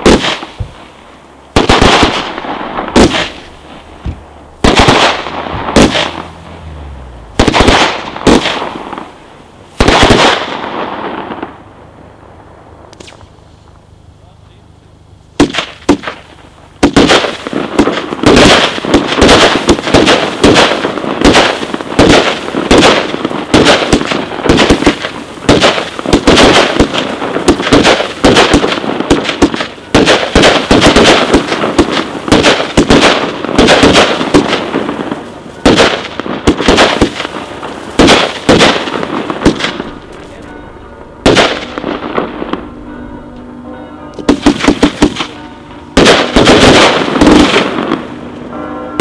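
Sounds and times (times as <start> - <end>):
firework launch thumps and bursts: 0.0 - 11.6, 12.9 - 13.8, 15.4 - 40.3, 44.2 - 45.3, 46.0 - 48.0
firework bangs: 0.0 - 49.0.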